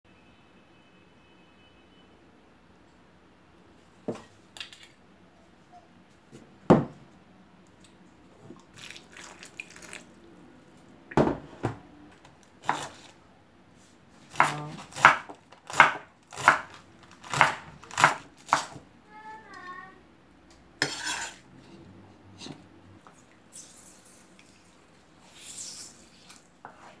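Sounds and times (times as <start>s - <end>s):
knock: 6.7s - 6.9s
water sloshing and dripping: 8.5s - 10.3s
knife chopping on wooden board: 12.6s - 13.0s, 14.3s - 18.8s.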